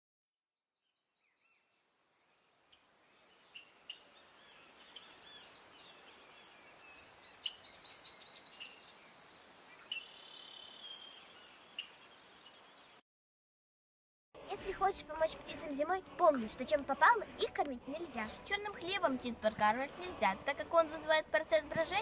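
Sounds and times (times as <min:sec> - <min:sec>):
steady high-pitched hiss: 0:01.4 - 0:13.0
small birds chirping: 0:03.3 - 0:13.0.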